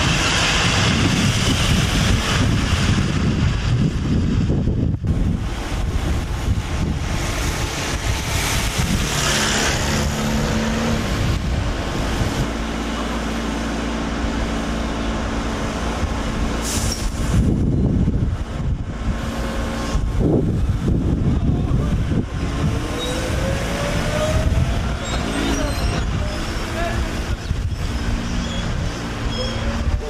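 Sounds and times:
air brake hiss: 0:16.6 - 0:17.4.

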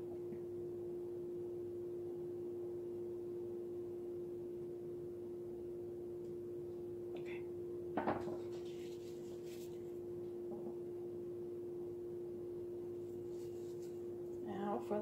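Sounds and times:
steady hum: 0:00.0 - 0:15.0
canvas knocking on table: 0:08.0 - 0:08.6
faint rustling: 0:08.4 - 0:10.0, 0:13.0 - 0:14.1.

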